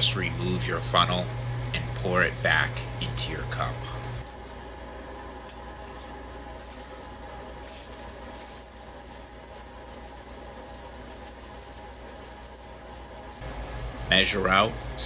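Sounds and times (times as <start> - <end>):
steady low hum: 0.0 - 15.0
crystals sliding through glass funnel: 7.6 - 13.4.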